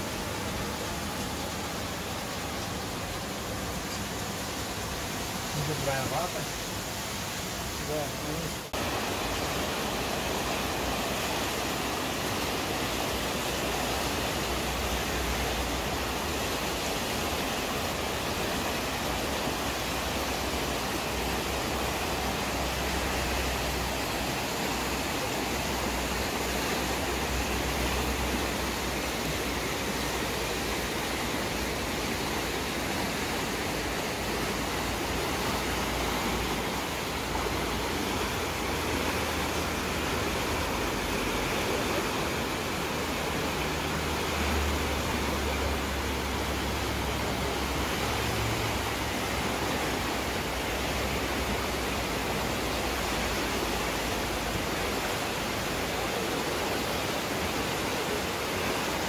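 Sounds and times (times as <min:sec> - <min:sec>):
river rushing over stones: 0:00.0 - 0:59.0.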